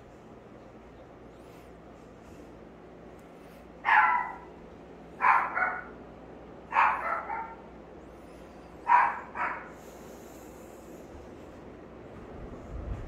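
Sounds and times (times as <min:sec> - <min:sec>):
dog barking: 0:03.8 - 0:04.6, 0:05.2 - 0:06.0, 0:06.7 - 0:07.7, 0:08.8 - 0:09.8.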